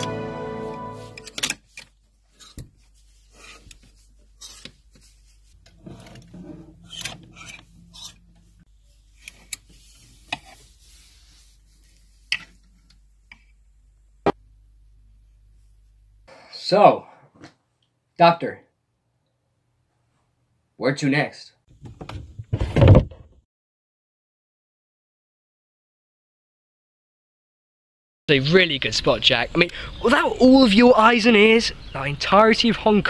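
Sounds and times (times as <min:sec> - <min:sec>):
fabric rustling: 0:00.9 - 0:12.9
hangers scraping and clicking: 0:01.1 - 0:10.8.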